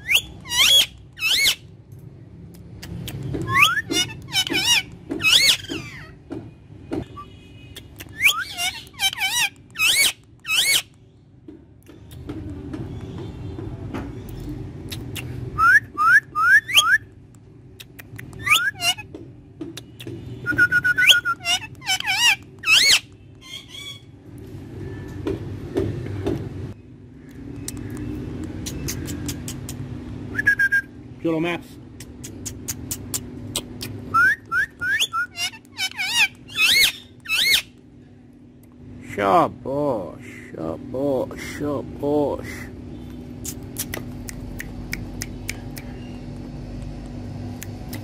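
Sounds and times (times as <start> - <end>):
parakeet whistling: 0.0 - 1.6, 3.5 - 6.1, 8.1 - 10.9, 18.4 - 19.0, 20.5 - 24.0, 34.1 - 37.7
parakeet clicks: 17.3 - 18.5, 27.3 - 29.8, 43.4 - 48.0.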